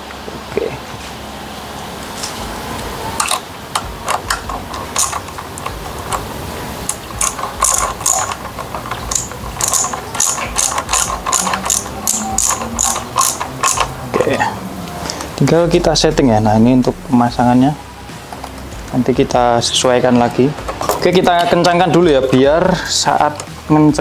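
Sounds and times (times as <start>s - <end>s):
screwdriver ratcheting clicks: 3.2s - 6.3s, 6.9s - 14.0s.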